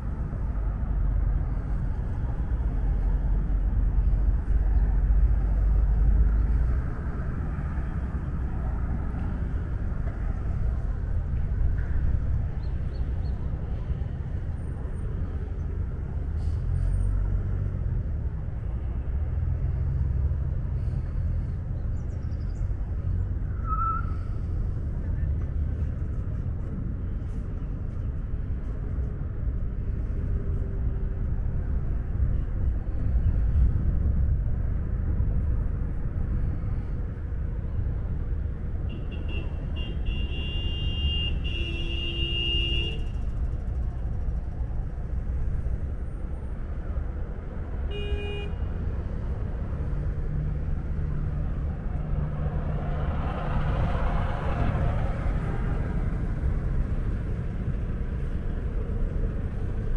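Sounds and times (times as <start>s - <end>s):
city traffic rumble: 0.0s - 59.9s
vehicle horn: 38.9s - 43.2s, 47.9s - 48.7s
vehicle passing close: 48.9s - 59.9s.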